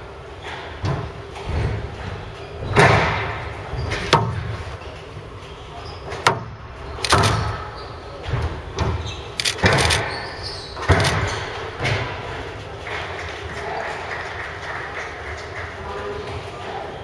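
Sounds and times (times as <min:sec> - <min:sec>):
squash ball hits echoing: 0:02.7 - 0:04.6, 0:06.1 - 0:09.0.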